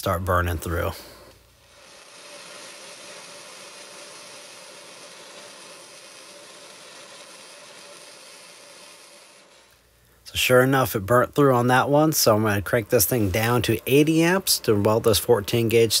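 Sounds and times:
welding arc hissing: 0:00.0 - 0:16.0.

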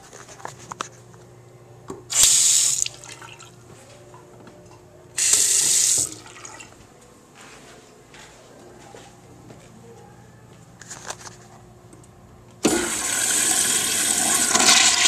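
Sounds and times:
water gushing into sink basin: 0:12.7 - 0:15.0.

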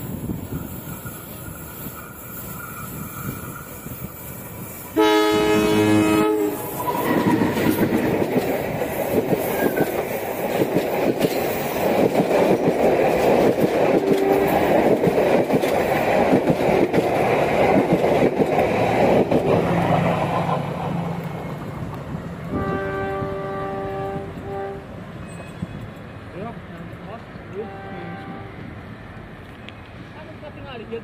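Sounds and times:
clickety-clack of passing coaches: 0:00.0 - 0:30.9
train wheels rumbling on rails: 0:00.0 - 0:31.0
locomotive horn blast: 0:05.0 - 0:07.4, 0:14.0 - 0:14.7, 0:22.5 - 0:24.9, 0:27.5 - 0:28.7.

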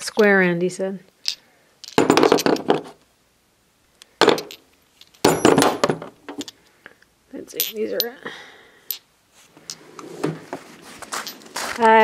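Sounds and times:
metal sockets clinking: 0:07.5 - 0:08.2.

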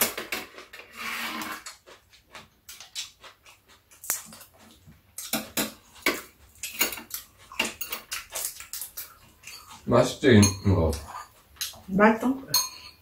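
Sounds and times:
chopsticks tapping metal plate: 0:05.2 - 0:11.8.

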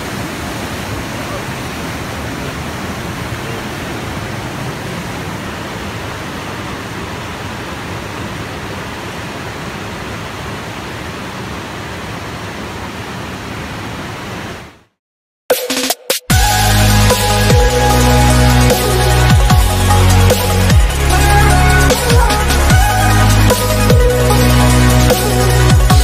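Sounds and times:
creek water rushing over rapids: 0:00.0 - 0:14.8.

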